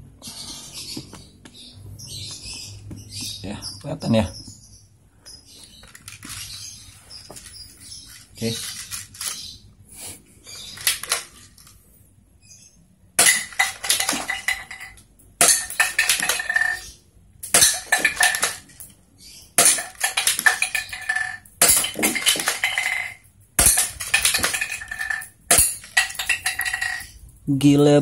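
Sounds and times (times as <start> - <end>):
bottle clattering on tiled floor: 10.6 - 11.8, 13.2 - 19.0, 19.6 - 27.3.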